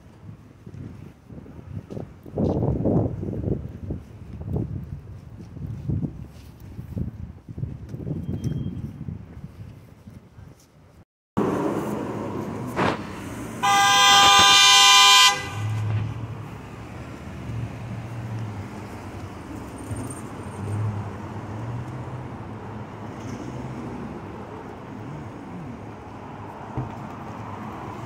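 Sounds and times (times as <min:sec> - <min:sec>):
passing street traffic: 0:00.0 - 0:09.4, 0:10.8 - 0:28.0
vehicle horn honking: 0:13.6 - 0:16.1.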